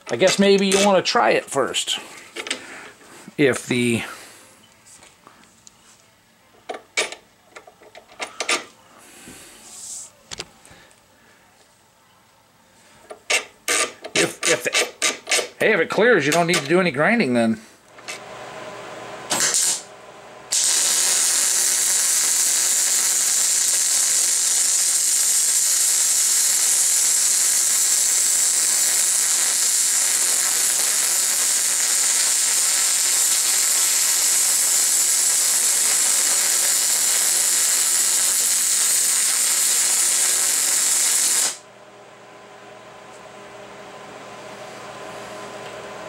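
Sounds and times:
welding arc hissing: 19.3 - 19.9, 20.5 - 41.6.

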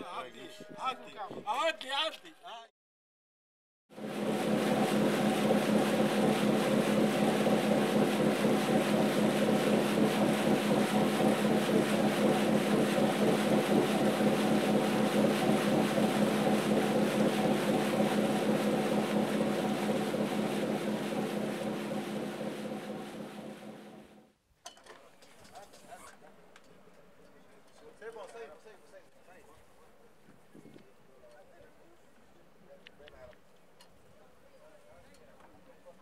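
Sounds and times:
boat engine droning: 4.0 - 24.2
water rushing along hull: 4.0 - 24.2.

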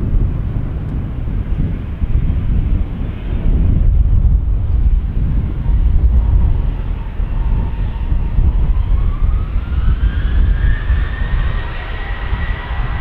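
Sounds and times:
jet engines spooling up: 0.2 - 13.0.

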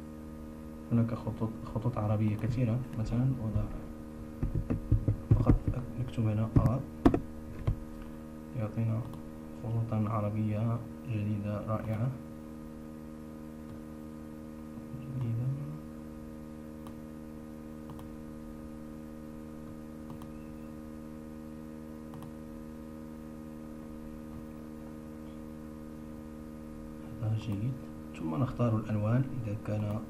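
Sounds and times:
electrical hum: 0.0 - 30.0
computer mouse clicks: 17.9 - 18.1, 20.0 - 20.4, 22.1 - 22.4.

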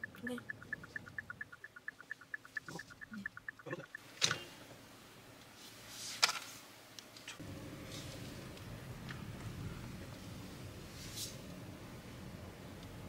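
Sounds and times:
rapid two-pitch electronic beeps: 0.0 - 4.0.

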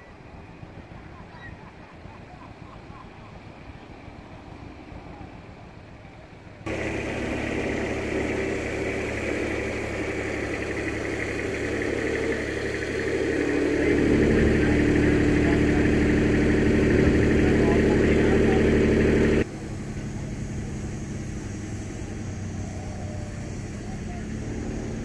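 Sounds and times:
engine idling: 0.0 - 25.0.

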